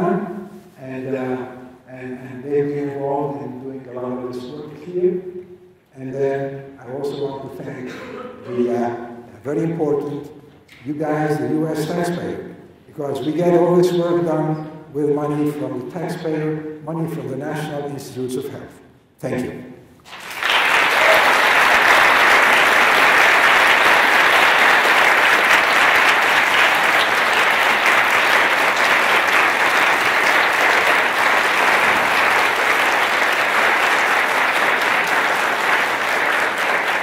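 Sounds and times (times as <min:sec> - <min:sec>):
audience applauding: 0:20.0 - 0:37.0.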